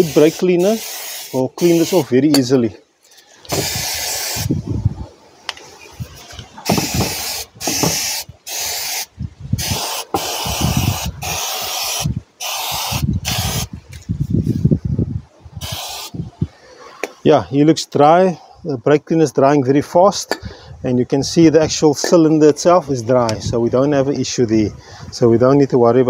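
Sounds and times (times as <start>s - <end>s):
aerosol spray hissing: 0.0s - 2.1s, 3.5s - 4.5s, 6.6s - 13.7s, 15.6s - 16.2s.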